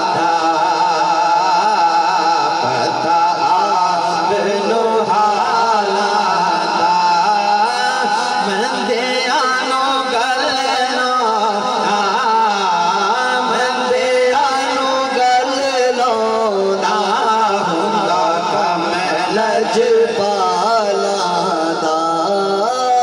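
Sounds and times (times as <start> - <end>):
man singing ornamented lines: 0.0 - 23.0.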